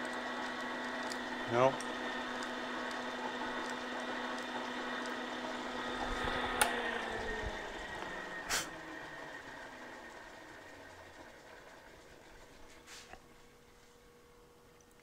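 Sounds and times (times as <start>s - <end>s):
milling machine spindle humming: 0.0s - 15.0s.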